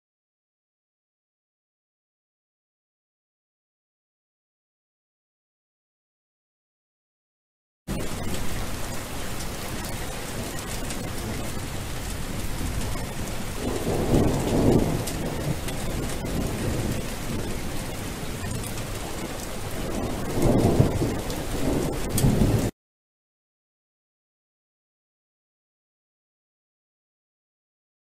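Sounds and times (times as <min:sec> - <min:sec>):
rain hiss: 0:07.9 - 0:22.7
thunder rumbling: 0:07.9 - 0:22.7.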